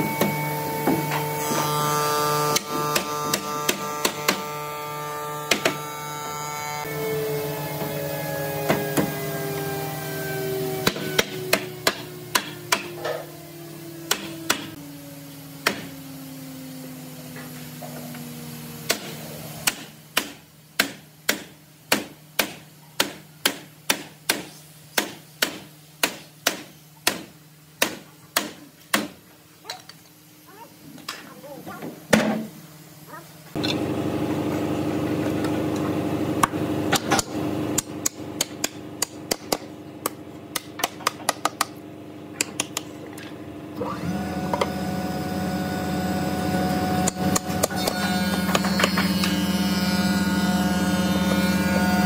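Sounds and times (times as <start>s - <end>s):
workshop machine whine spinning down: 6.3s - 19.6s
hammer strikes: 10.8s - 13.2s, 14.0s - 14.8s, 18.9s - 29.2s, 36.4s - 41.8s.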